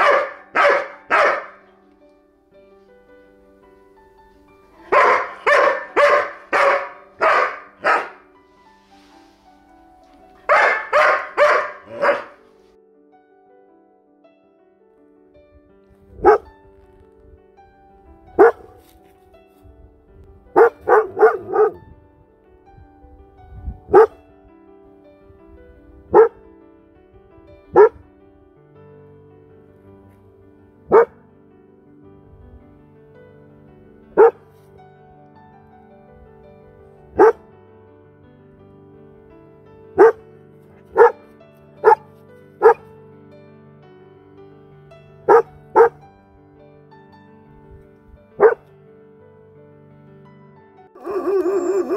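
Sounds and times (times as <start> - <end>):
dog barking: 0.0 - 1.7, 4.8 - 8.3, 10.3 - 12.5, 16.2 - 16.5, 18.4 - 18.9, 20.6 - 21.8, 23.9 - 24.2, 26.1 - 26.4, 27.7 - 28.0, 30.9 - 31.2, 34.2 - 34.4, 37.2 - 37.4, 40.0 - 40.2, 40.8 - 41.2, 41.8 - 42.9, 45.3 - 46.0, 48.4 - 48.7, 51.0 - 51.9
soft background music: 0.0 - 51.9.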